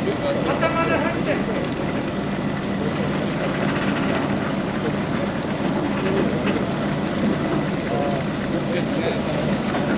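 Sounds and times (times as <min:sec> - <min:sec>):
ferry engines idling: 0:00.0 - 0:09.9.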